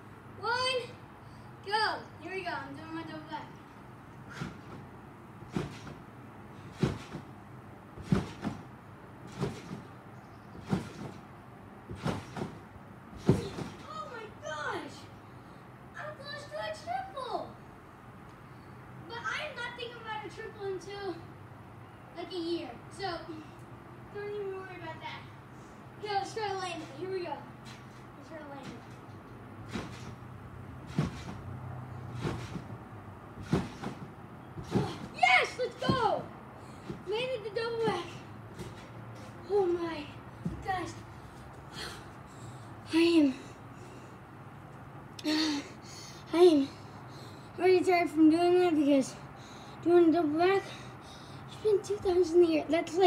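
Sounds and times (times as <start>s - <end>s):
trampoline thumping: 2.8s - 15.0s, 26.0s - 42.1s
thumps on trampoline mat: 4.3s - 6.0s, 6.6s - 7.3s, 8.0s - 10.0s, 10.6s - 11.2s, 11.9s - 12.6s, 13.2s - 13.9s, 29.6s - 30.2s, 30.8s - 31.4s, 32.1s - 32.8s, 33.4s - 36.2s, 36.8s - 37.2s, 37.8s - 39.3s.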